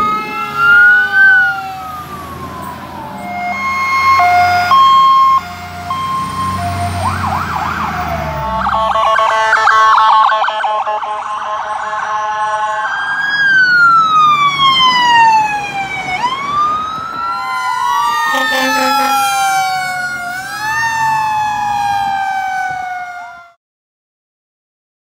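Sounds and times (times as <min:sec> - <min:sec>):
emergency sirens wailing: 0:00.0 - 0:23.6
low horn: 0:18.2 - 0:20.3.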